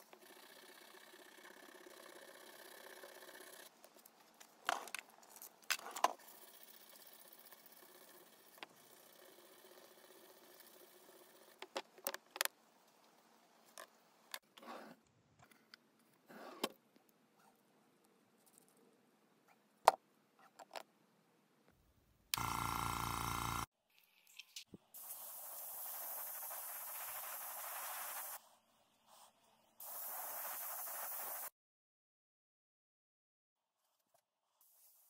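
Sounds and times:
hand-sanding wood with sandpaper: 0:25.8 - 0:28.4.

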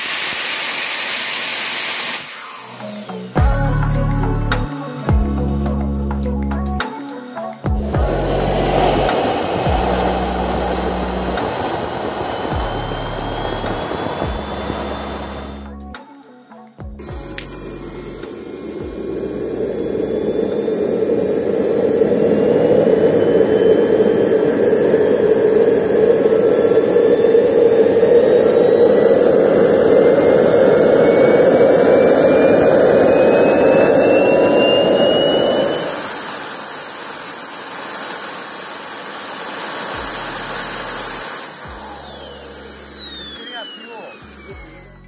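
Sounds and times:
high turbine whine: 0:00.0 - 0:04.8, 0:07.6 - 0:15.8, 0:17.0 - 0:45.0
jet engine exhaust roar: 0:07.7 - 0:15.7, 0:17.1 - 0:45.0.

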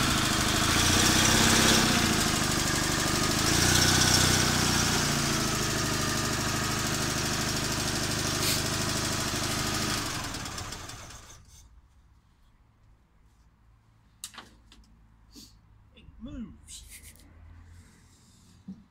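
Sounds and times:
car engine idling: 0:00.0 - 0:11.4.

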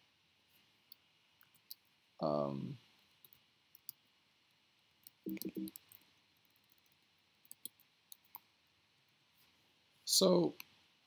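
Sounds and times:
keyboard keys clicking: 0:05.3 - 0:06.0.

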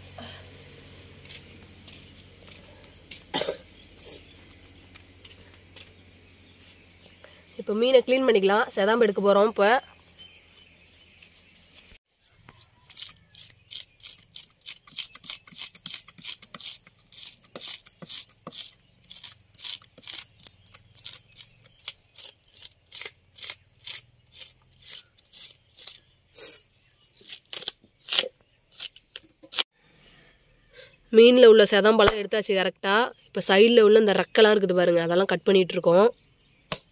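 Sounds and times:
fish scaler scraping scales: 0:12.9 - 0:29.6.

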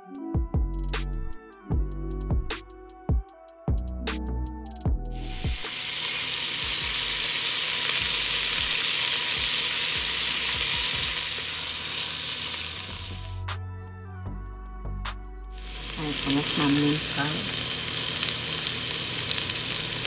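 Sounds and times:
background music with a beat: 0:00.0 - 0:05.9, 0:06.6 - 0:07.3, 0:07.9 - 0:11.4, 0:12.7 - 0:16.4
onion sizzling in hot fat: 0:05.2 - 0:13.2, 0:15.6 - 0:20.0.

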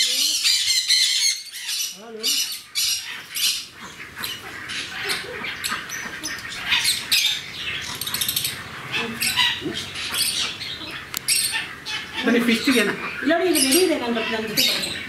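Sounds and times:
parrots squawking and chirping: 0:00.0 - 0:15.0.

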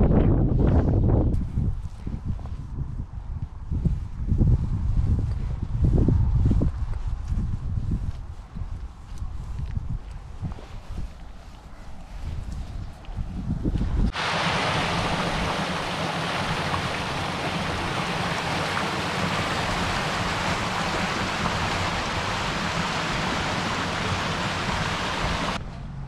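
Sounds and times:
water rushing over weir: 0:14.1 - 0:25.6.

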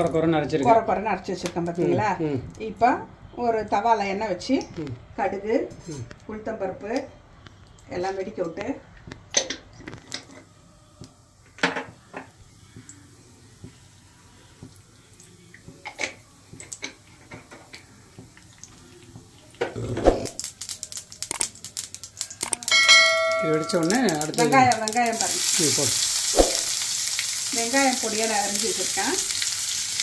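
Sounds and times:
hot oil crackling: 0:11.2 - 0:30.0
utensils clinking on metal pots: 0:21.3 - 0:25.8.

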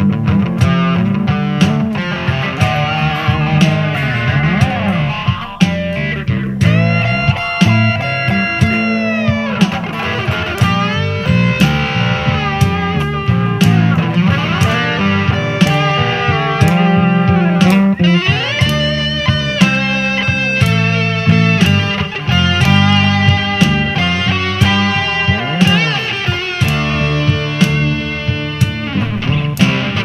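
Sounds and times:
bass guitar: 0:00.0 - 0:30.0
electric guitar lead with bends: 0:00.0 - 0:30.0
steady drum beat: 0:00.2 - 0:30.0.

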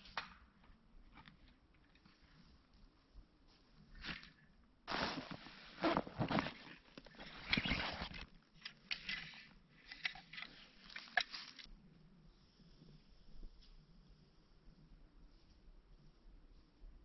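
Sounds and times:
backpack rustling on pine needles: 0:04.9 - 0:08.4.

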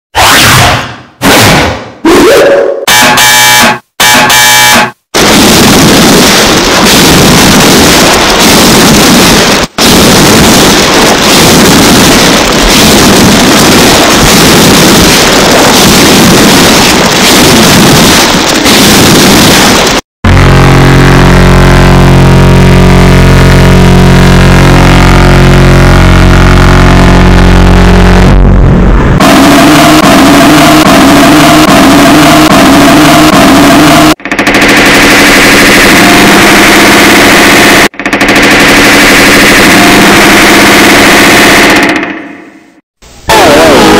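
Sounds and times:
harsh distorted noisy blast: 0:00.1 - 0:43.9
drone of held tones: 0:20.3 - 0:41.9.

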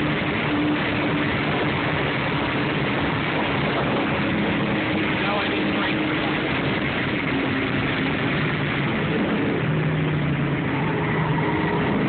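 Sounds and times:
car engine running at speed: 0:00.0 - 0:12.0
road and wind noise: 0:00.0 - 0:12.0.

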